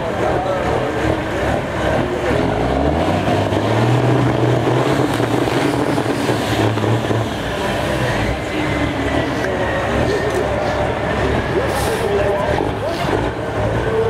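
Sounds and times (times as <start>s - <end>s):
diesel truck engines revving: 0.0s - 14.0s.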